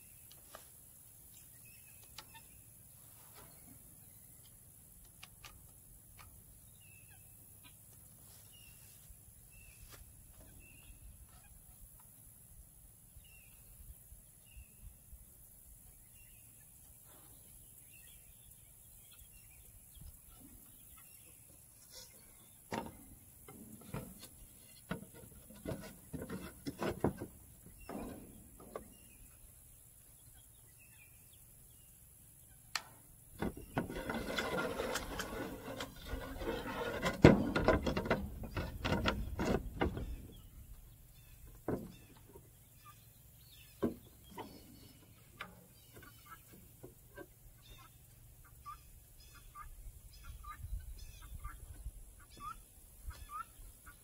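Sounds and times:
plywood scraping against wood: 21.8 - 29.1, 33.4 - 40.5.

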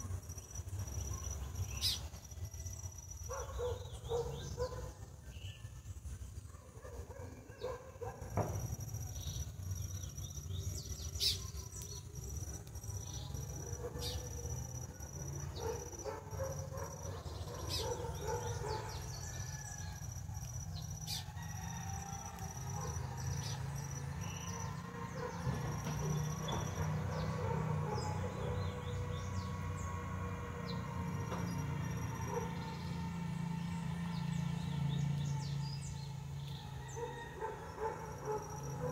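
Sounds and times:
high-pitched insect trill: 0.0 - 4.9, 7.7 - 38.9
bird chirps: 0.1 - 5.8, 7.1 - 21.4, 22.2 - 29.7.

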